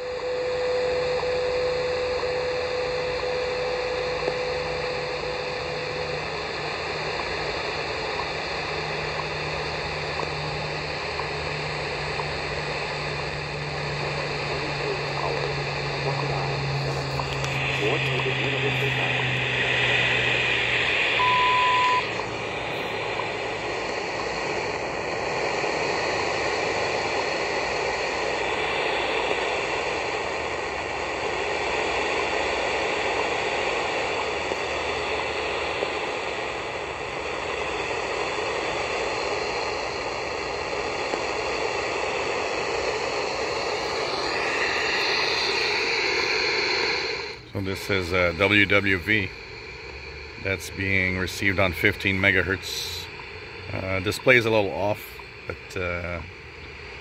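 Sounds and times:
shortwave radio static: 0:00.0 - 0:57.0
short radio beep: 0:21.2 - 0:22.2.

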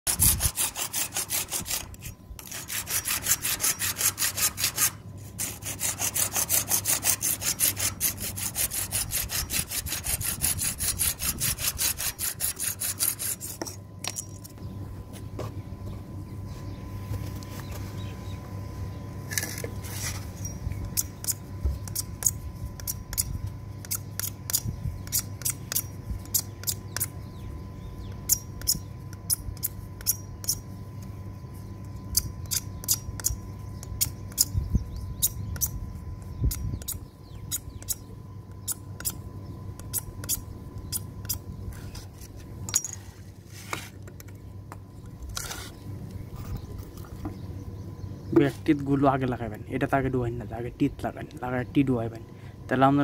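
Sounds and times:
hacksaw scraping plastic pipe: 0:00.1 - 0:13.8.

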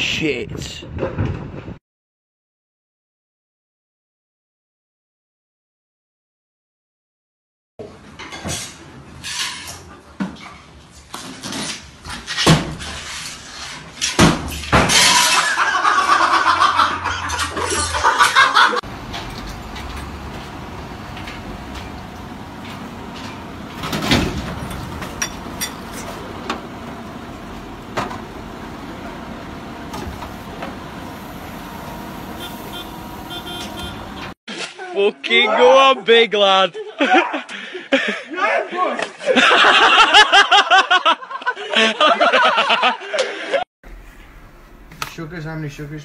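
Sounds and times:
debris crashing: 0:14.6 - 0:15.6
lorry engine running: 0:16.5 - 0:34.4.

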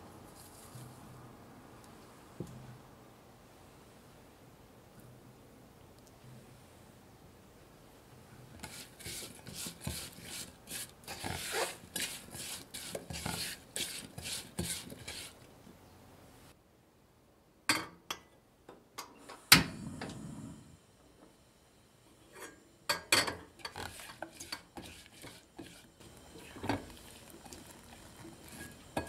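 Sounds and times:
spoon scraping a saucepan: 0:08.6 - 0:15.4, 0:22.3 - 0:29.0.

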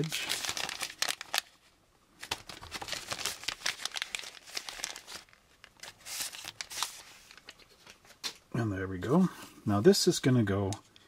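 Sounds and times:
plastic bag crinkling: 0:00.0 - 0:07.9.

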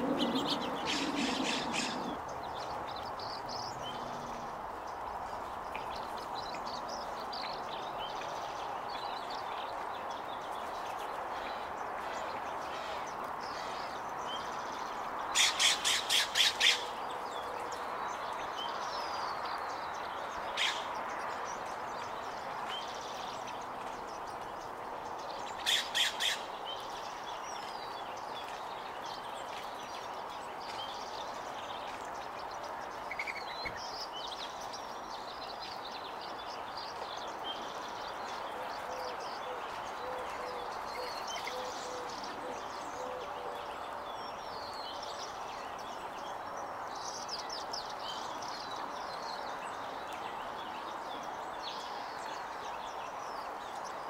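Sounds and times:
songbirds chirping and twittering: 0:00.0 - 0:54.0
harsh bird squawks: 0:00.1 - 0:02.2.

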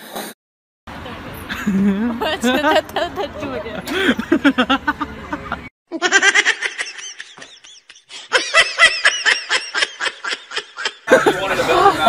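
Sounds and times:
person laughing hard: 0:01.5 - 0:02.2, 0:03.8 - 0:12.0.

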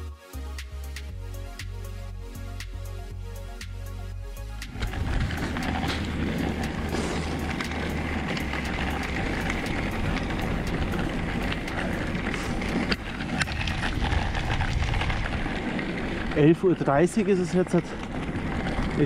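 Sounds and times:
deep rumble: 0:01.1 - 0:19.0
small crackles: 0:04.6 - 0:19.0
wind buffeting microphone: 0:04.7 - 0:19.0.

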